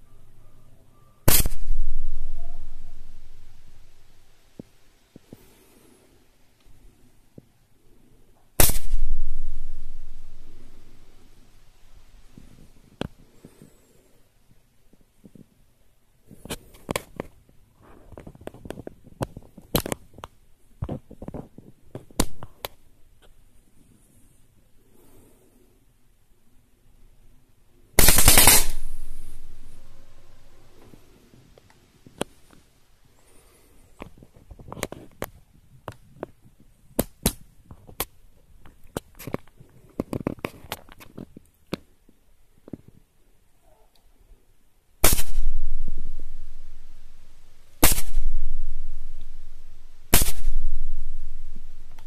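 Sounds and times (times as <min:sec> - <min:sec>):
clicks and knocks of handling airgun: 0:16.4 - 0:17.5, 0:18.1 - 0:23.4, 0:34.0 - 0:43.0.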